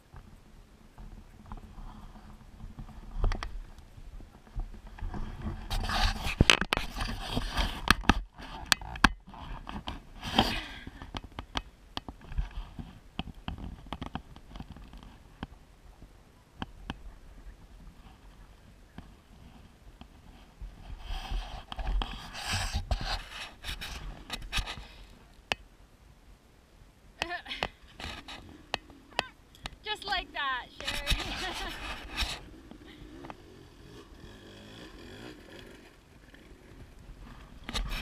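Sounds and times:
scraping and rustling: 0:29.8 - 0:38.0.

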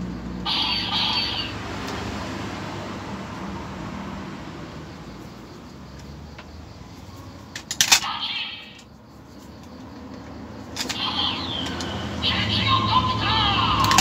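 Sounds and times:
noisy electronic whirr: 0:00.0 - 0:02.0, 0:07.8 - 0:09.0, 0:10.8 - 0:14.0
toy click: 0:00.5 - 0:02.0, 0:07.5 - 0:08.9, 0:09.6 - 0:14.0.

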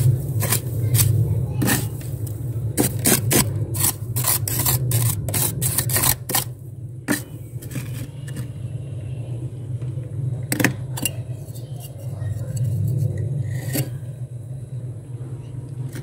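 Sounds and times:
freezer frost scraping: 0:00.0 - 0:08.6
low steady hum: 0:00.0 - 0:16.0.

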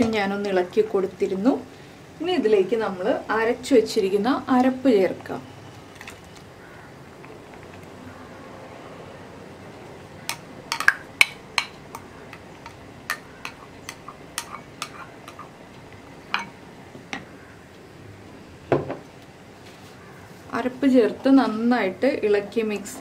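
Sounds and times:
spoon scraping a bowl: 0:12.3 - 0:15.6.

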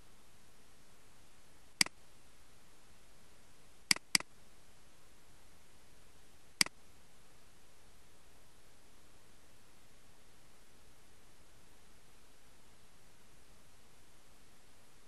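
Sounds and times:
faint steady hiss: 0:00.0 - 0:15.0
mouse button clicks: 0:03.9 - 0:04.3.

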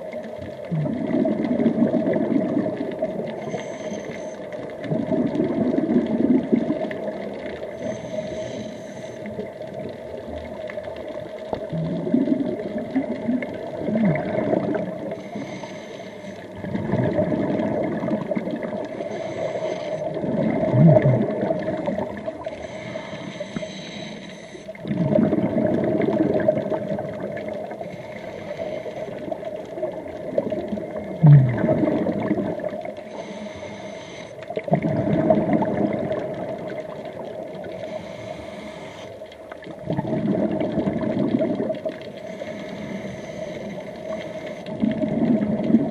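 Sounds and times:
exhaled bubbles underwater: 0:00.0 - 0:45.9
regulator inhale hiss: 0:03.4 - 0:04.7, 0:07.6 - 0:09.5, 0:15.0 - 0:16.6, 0:18.8 - 0:20.2, 0:22.4 - 0:24.8, 0:27.7 - 0:29.5, 0:32.9 - 0:34.6, 0:37.6 - 0:39.5, 0:42.1 - 0:44.8.

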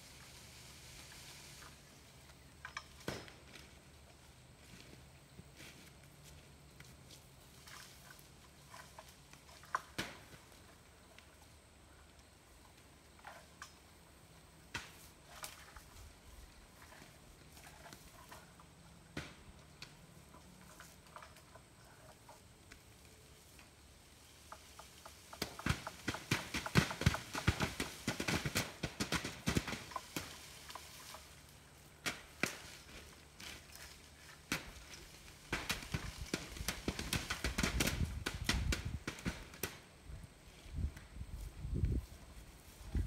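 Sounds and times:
branches shaken with pole: 0:00.0 - 0:11.5, 0:14.6 - 0:43.0
leaves rustling: 0:00.0 - 0:43.0
apples thudding onto plastic tarp: 0:25.4 - 0:30.9, 0:32.0 - 0:39.8.

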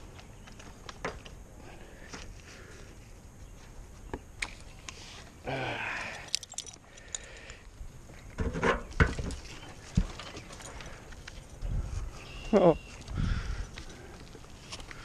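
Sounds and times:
climbing hardware clinking: 0:05.8 - 0:07.6.

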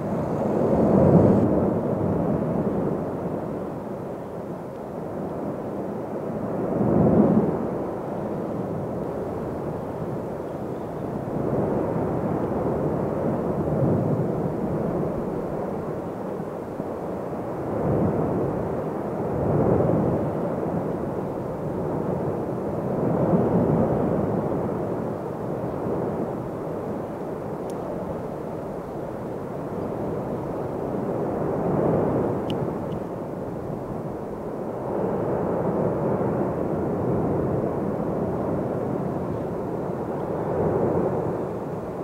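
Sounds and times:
deep volcanic rumble: 0:00.0 - 0:42.0.

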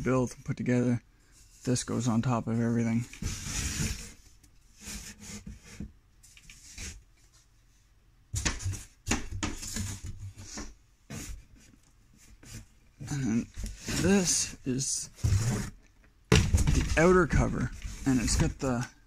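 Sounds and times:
cardboard rustling and scraping: 0:02.9 - 0:07.5, 0:08.4 - 0:19.0.

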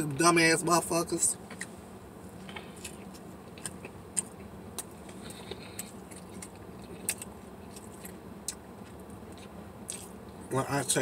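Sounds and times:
faint low hum: 0:00.0 - 0:11.0
person chewing bread: 0:02.4 - 0:10.4.

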